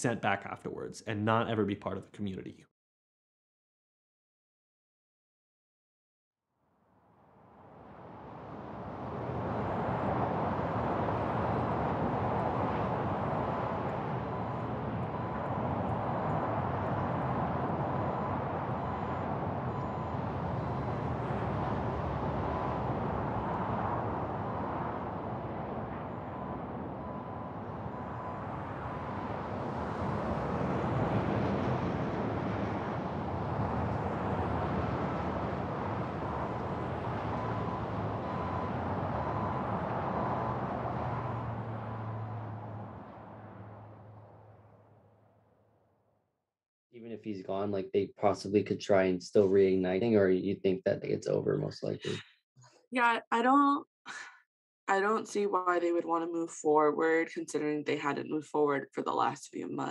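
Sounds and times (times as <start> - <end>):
freeway traffic rushing: 7.5 - 45.4
faint beeping tone: 13.4 - 23.7, 26.1 - 29.5, 36.2 - 42.7, 51.2 - 52.2.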